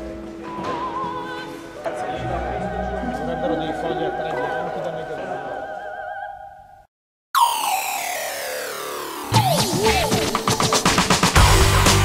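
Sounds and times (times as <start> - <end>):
operatic voice singing with vibrato: 0.7 - 6.6
musical accompaniment: 7.4 - 12.0.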